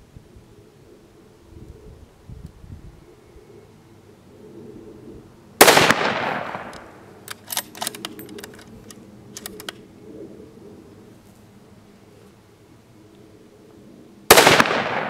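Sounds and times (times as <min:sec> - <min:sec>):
rifle shot: 0:05.6 - 0:07.0, 0:14.3 - 0:15.0
rifle bolt metallic clicks: 0:06.3 - 0:09.8.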